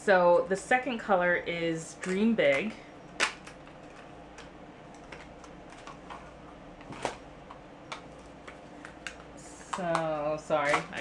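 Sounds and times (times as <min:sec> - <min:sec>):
packaging clicks and taps: 0:02.0 - 0:06.2, 0:06.8 - 0:11.0.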